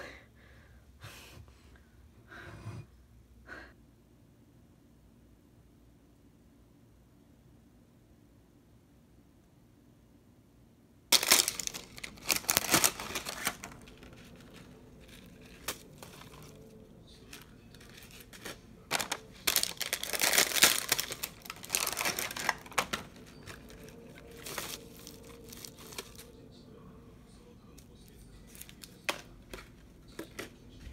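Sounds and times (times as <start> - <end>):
plastic packaging crinkling: 11.1 - 26.4, 28.4 - 30.5.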